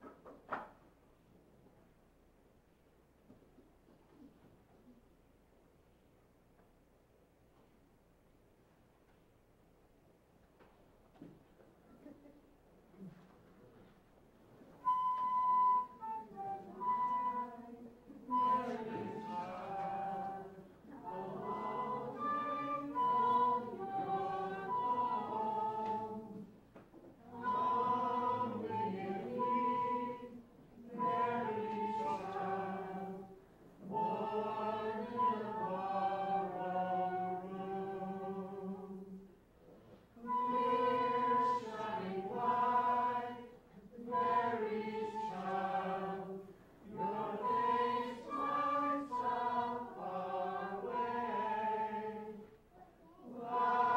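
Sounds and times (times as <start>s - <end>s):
choir singing: 14.8s - 26.6s, 27.2s - 39.4s, 40.2s - 52.6s, 53.2s - 53.9s.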